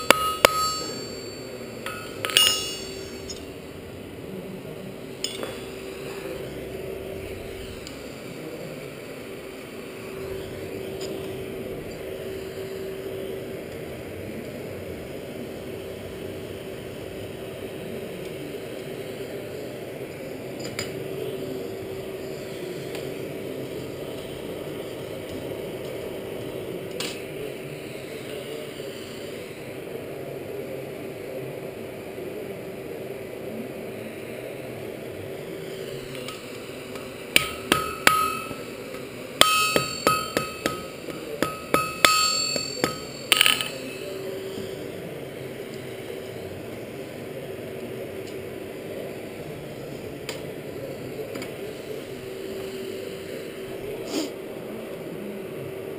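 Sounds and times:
hammer ringing on anvil: 0.0 - 3.7, 5.2 - 5.8, 37.4 - 38.8, 39.4 - 44.0.

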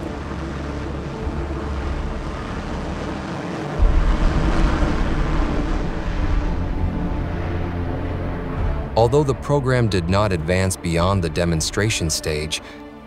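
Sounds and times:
deep low rumble: 0.0 - 9.3
jet engine rushing hiss: 0.0 - 12.8.

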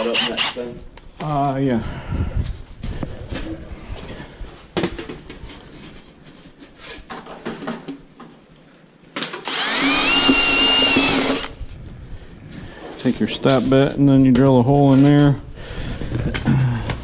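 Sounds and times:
drill squealing through metal: 0.0 - 0.6, 9.5 - 11.6
handling knocks and clatter: 4.8 - 8.4.

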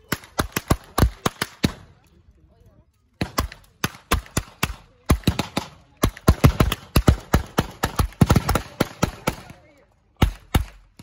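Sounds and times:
blank gunfire: 3.2 - 9.6.

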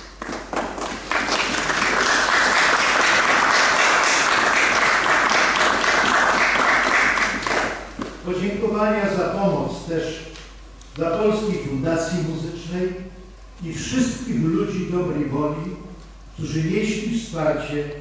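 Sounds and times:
crowd applauding: 0.0 - 7.9.

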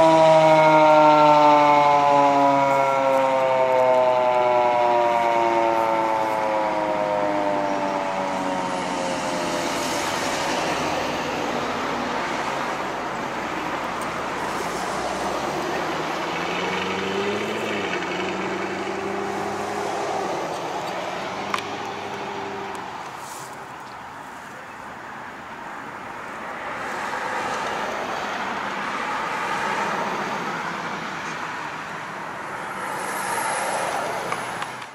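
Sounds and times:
siren winding down: 0.0 - 12.4
vehicle engine rising in pitch: 0.0 - 23.0
cars and trucks driving past: 0.0 - 34.9.

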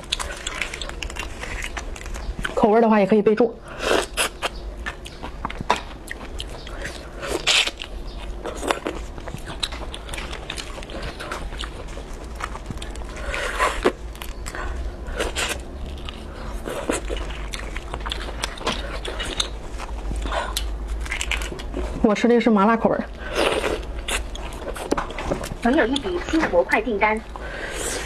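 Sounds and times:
crayfish shells crackling: 0.0 - 2.7, 15.3 - 21.8
chewing: 0.0 - 2.8, 3.7 - 22.0, 23.1 - 26.5.

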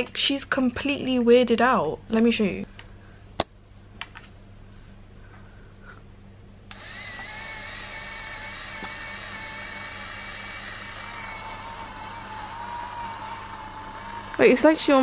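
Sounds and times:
lint shaver whining: 6.7 - 15.0.

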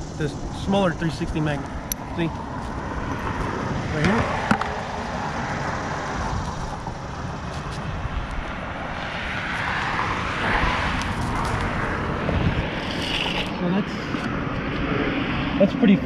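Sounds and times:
road traffic: 0.0 - 16.0
wind: 0.0 - 16.0.

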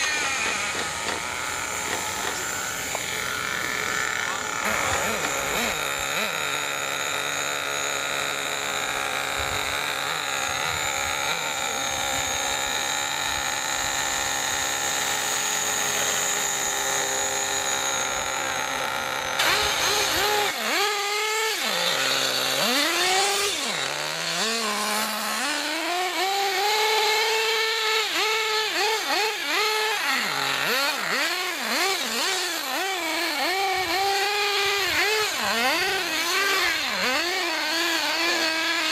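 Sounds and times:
model helicopter high whine: 0.0 - 38.9
model truck engine revving: 0.0 - 38.9.

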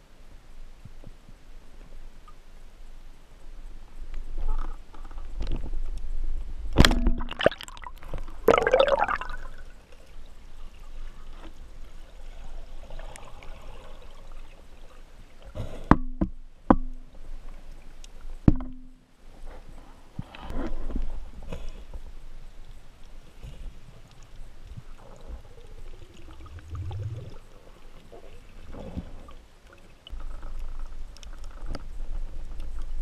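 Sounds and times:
underwater water rush: 6.8 - 10.1, 23.3 - 30.9.

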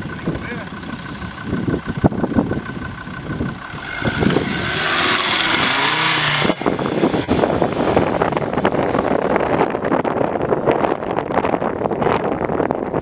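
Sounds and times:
engine revving: 0.0 - 13.0
rush of noise: 3.6 - 13.0.

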